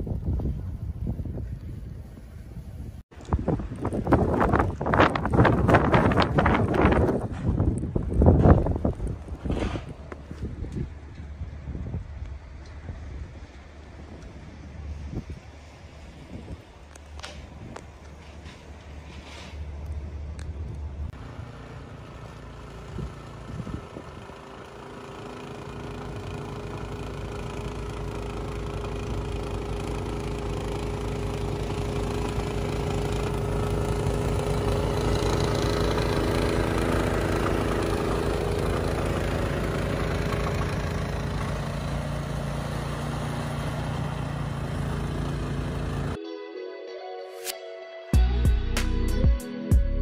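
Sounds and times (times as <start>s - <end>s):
snowblower engine running: 21.1s - 46.2s.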